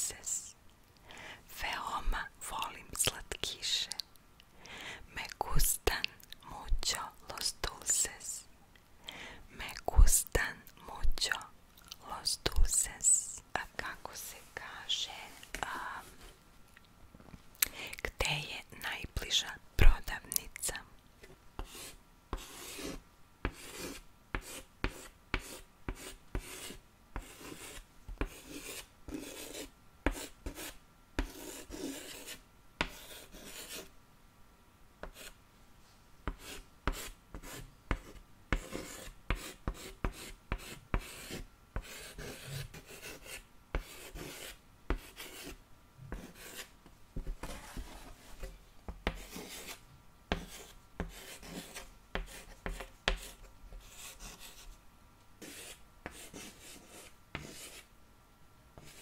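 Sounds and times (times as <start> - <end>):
scratching and rubbing on a surface: 21.2 - 33.9, 36.3 - 54.8, 55.4 - 57.8, 58.8 - 59.0.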